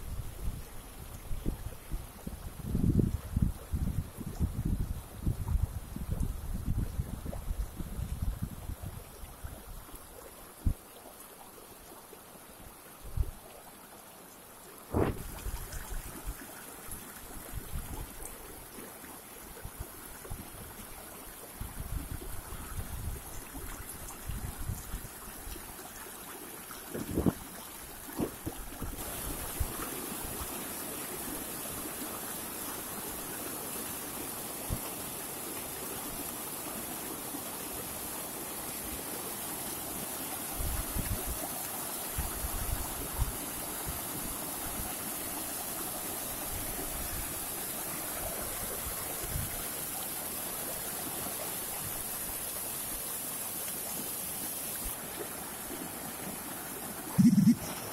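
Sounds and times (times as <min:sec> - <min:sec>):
stream splashing over rocks: 0:00.4 - 0:57.9
low thumps on microphone: 0:14.9 - 0:15.4.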